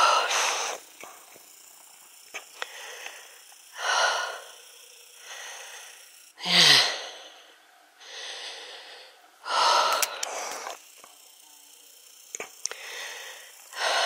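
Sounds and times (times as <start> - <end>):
woman breathing heavily: 0.0 - 1.2, 2.4 - 10.8, 12.6 - 14.0.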